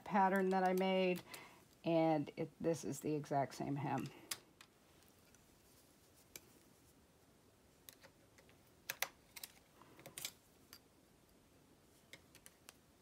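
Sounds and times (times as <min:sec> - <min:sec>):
transfer tool clicking on needles: 0:00.2 - 0:01.9.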